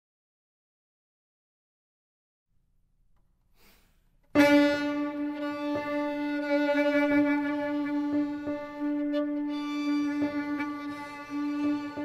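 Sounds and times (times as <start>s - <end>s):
violin long bowed note: 4.3s - 12.0s.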